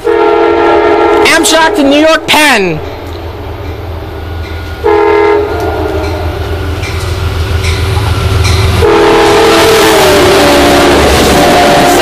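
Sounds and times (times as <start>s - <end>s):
multi-tone train horn blast: 0.0s - 2.1s, 4.8s - 6.7s, 8.7s - 12.0s
diesel locomotive rumbling: 0.0s - 12.0s.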